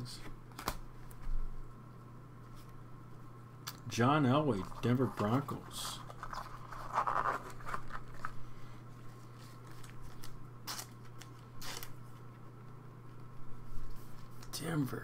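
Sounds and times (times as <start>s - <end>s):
steady low hum: 0.0s - 15.0s
gloved hands rubbing card: 4.5s - 8.4s.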